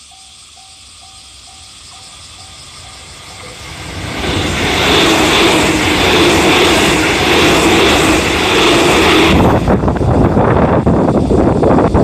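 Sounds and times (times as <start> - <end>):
electric train passing: 0.0 - 12.0.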